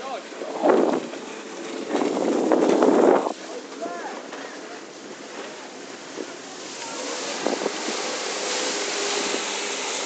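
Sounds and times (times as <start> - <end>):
rushing spray and wake water: 0.0 - 10.0
wind noise on microphone: 0.4 - 3.4, 7.1 - 10.0.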